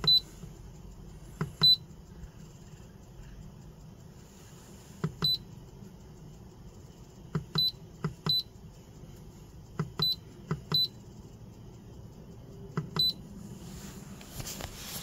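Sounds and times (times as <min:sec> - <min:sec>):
short high key beeps: 0:00.0 - 0:00.3, 0:01.6 - 0:01.9, 0:05.2 - 0:05.5, 0:07.5 - 0:08.6, 0:09.9 - 0:11.0, 0:12.9 - 0:13.4.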